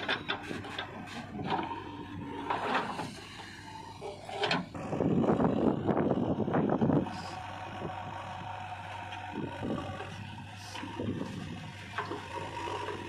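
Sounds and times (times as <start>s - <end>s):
diesel engine humming: 0.0s - 13.0s.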